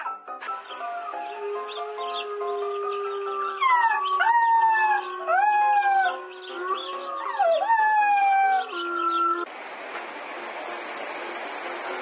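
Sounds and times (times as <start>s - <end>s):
background music: 0.0s - 9.2s
puppy howling: 1.0s - 9.5s.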